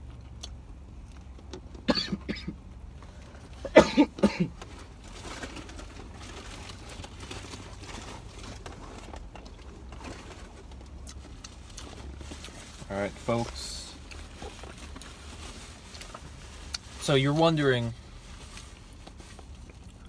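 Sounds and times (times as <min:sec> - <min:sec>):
low hum in car cabin: 0:00.0 - 0:20.0
person coughing: 0:01.9 - 0:02.6, 0:03.6 - 0:04.6
faint rustle: 0:04.6 - 0:20.0.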